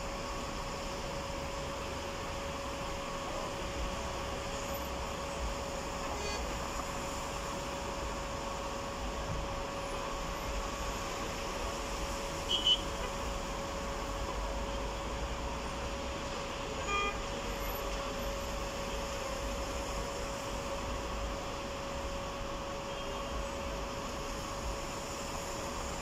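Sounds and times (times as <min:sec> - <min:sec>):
road traffic hum: 0:00.0 - 0:26.0
car horn toot: 0:12.5 - 0:13.2, 0:16.8 - 0:17.2.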